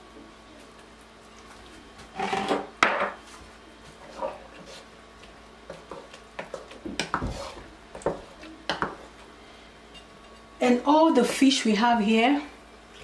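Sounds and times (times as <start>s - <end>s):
spatula scraping thick soup: 5.9s - 7.7s.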